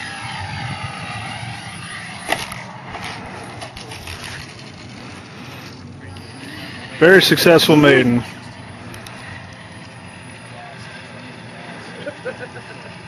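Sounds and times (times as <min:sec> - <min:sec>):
model plane motor whine: 0:00.0 - 0:13.0.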